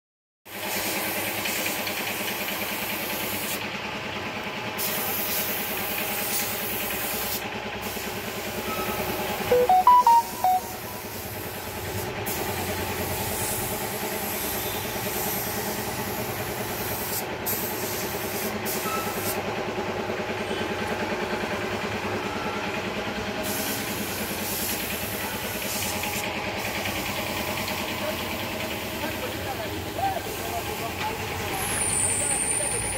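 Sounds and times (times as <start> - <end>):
machine drone and hiss: 0.5 - 8.7, 11.1 - 19.5, 23.3 - 32.9
short high beeps: 8.7 - 11.4.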